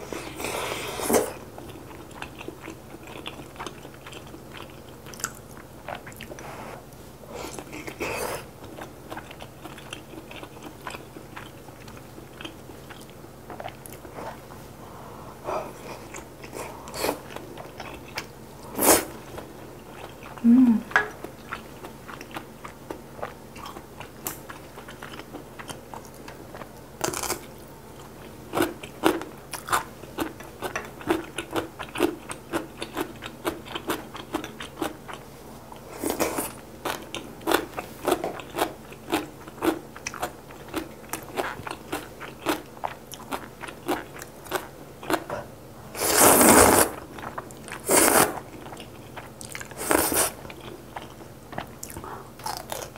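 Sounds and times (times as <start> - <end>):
person chewing wetly: 0.4 - 6.6, 7.4 - 14.4, 15.7 - 45.3, 46.1 - 52.9
low voiced hum: 20.3 - 21.2.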